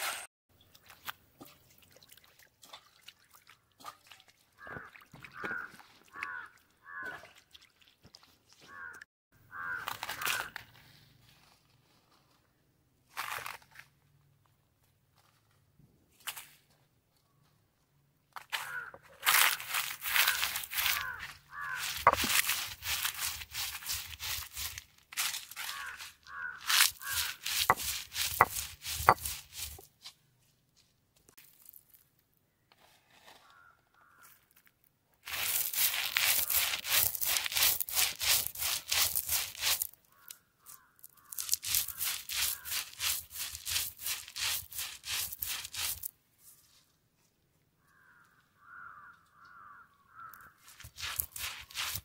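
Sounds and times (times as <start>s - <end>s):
crows cawing: 4.6s - 7.3s, 8.7s - 10.6s, 18.6s - 19.1s, 20.0s - 22.3s, 25.6s - 27.4s, 33.4s - 34.4s, 40.1s - 42.9s, 47.8s - 50.7s
stone roller crushing seeds: 18.6s - 29.9s, 35.3s - 46.1s, 50.3s - 52.0s.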